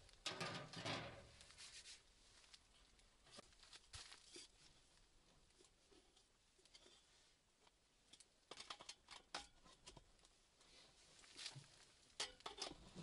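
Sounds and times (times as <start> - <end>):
faint rustling: 0.0 - 7.8.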